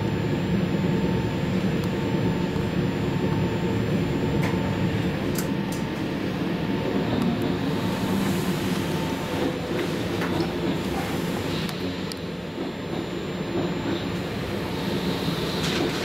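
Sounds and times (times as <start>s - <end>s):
train wheels rumbling: 3.9s - 16.0s.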